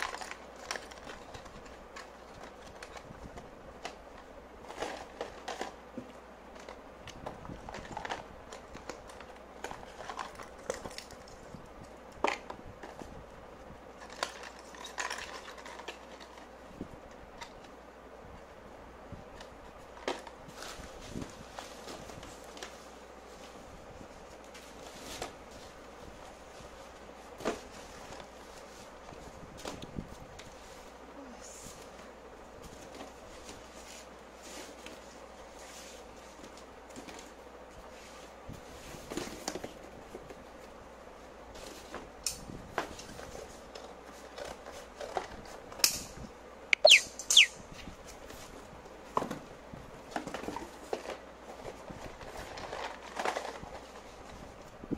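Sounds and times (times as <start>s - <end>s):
short squeaks: 46.8s - 47.6s.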